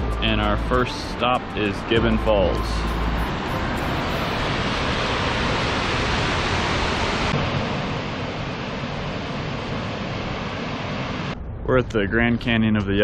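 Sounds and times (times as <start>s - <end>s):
waterfall rushing: 2.2s - 9.6s.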